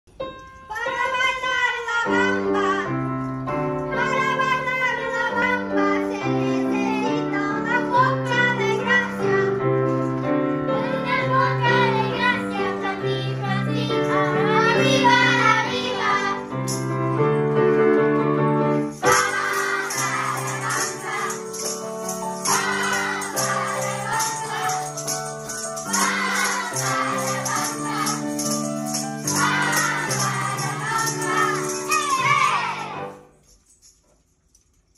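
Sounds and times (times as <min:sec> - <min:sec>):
instrumental accompaniment: 0:00.1 - 0:34.0
maracas and tambourine shaking: 0:00.3 - 0:34.9
children singing: 0:04.0 - 0:09.6, 0:10.7 - 0:16.6, 0:19.0 - 0:33.1.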